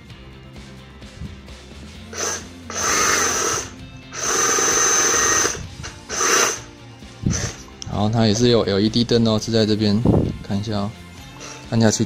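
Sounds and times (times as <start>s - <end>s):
reciprocating saw running: 2.0s - 7.7s.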